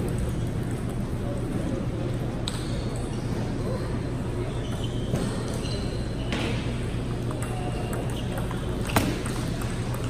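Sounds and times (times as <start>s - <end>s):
ping pong ball ticking: 7.2s - 10.0s.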